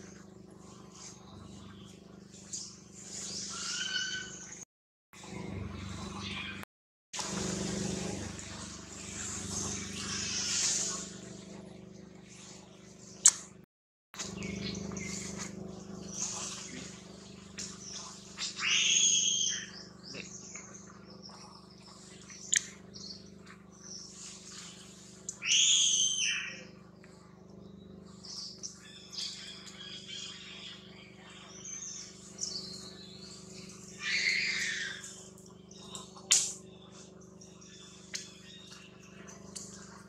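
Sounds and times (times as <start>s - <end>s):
high-pitched animal calls: 3.1s - 4.6s, 10.0s - 11.1s, 17.9s - 20.2s, 25.3s - 26.8s, 33.9s - 35.2s.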